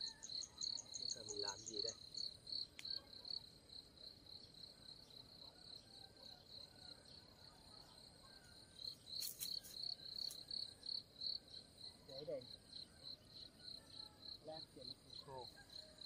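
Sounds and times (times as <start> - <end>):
insect chirping: 0.0 - 16.0
rustles: 9.0 - 10.5.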